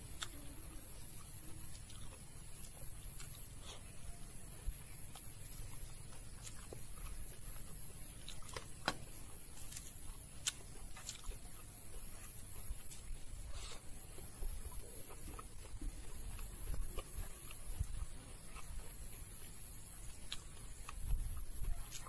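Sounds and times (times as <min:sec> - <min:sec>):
chewing: 0:00.0 - 0:22.0
faint high-pitched whine: 0:00.0 - 0:22.0.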